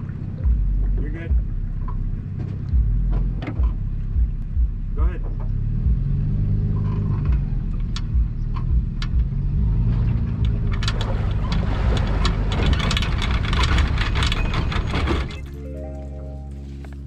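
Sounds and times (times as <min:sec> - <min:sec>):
pickup truck engine running: 0:00.0 - 0:17.0
dense rattling clatter: 0:10.0 - 0:15.6.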